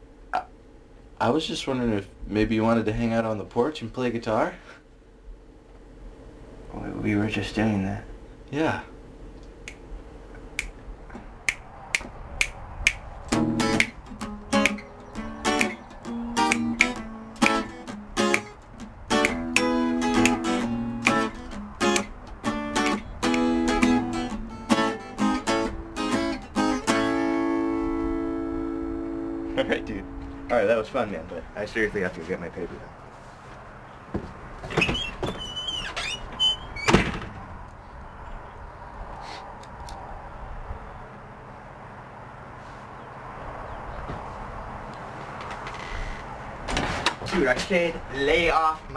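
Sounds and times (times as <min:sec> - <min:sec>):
finger snaps: 0:09.4 - 0:10.8, 0:11.4 - 0:18.6, 0:19.2 - 0:22.1, 0:22.8 - 0:23.9
acoustic guitar strumming: 0:13.3 - 0:30.9
door hinges squeaking: 0:34.6 - 0:37.4, 0:45.4 - 0:47.3
door banging shut: 0:34.6 - 0:37.5, 0:46.6 - 0:47.4.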